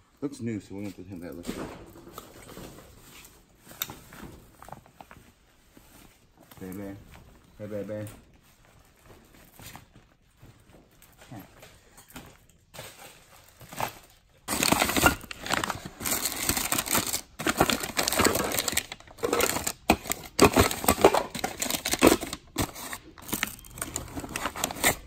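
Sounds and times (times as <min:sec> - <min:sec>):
paper crinkling and rustling: 0:12.6 - 0:25.0.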